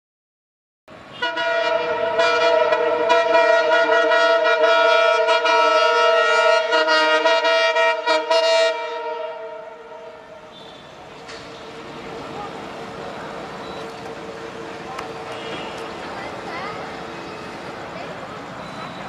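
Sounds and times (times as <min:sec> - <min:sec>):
locomotive air horn blast: 0:01.1 - 0:11.0, 0:14.4 - 0:16.0.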